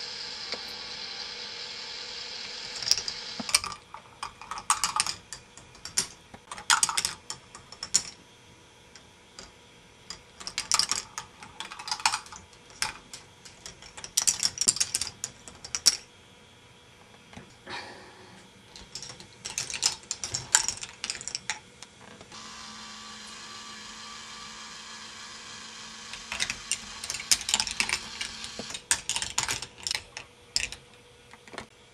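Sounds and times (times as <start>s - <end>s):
steady hiss: 0.0s - 6.5s
balls clattering through plastic tracks: 2.8s - 8.2s, 10.1s - 16.0s, 18.7s - 22.3s, 26.1s - 30.8s.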